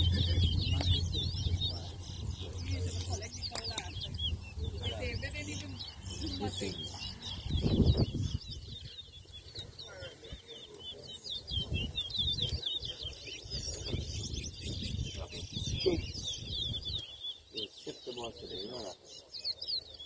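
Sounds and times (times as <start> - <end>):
low rumble: 0.0 - 6.0
finch singing in chirping phrases: 0.0 - 20.0.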